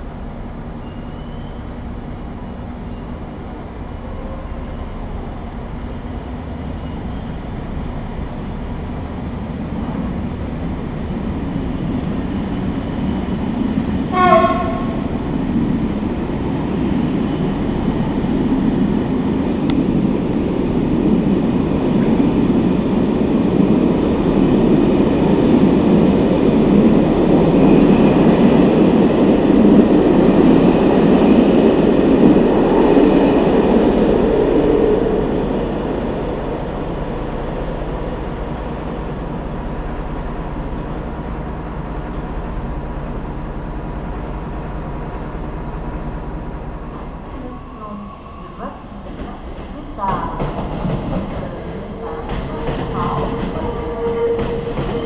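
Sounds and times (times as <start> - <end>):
train wheels rumbling on track: 0.0 - 55.0
train horn blast: 14.0 - 15.2, 51.9 - 55.0.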